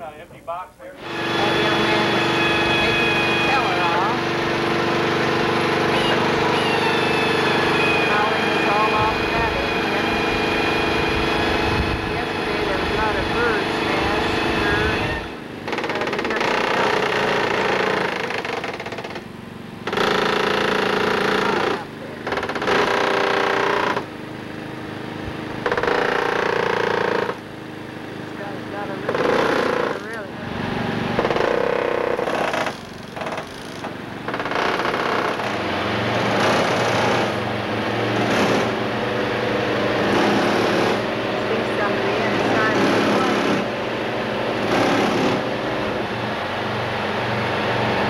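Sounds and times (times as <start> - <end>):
machinery rattling: 1.0 - 24.2, 25.5 - 27.5, 28.2 - 48.0
motor droning: 1.0 - 48.0.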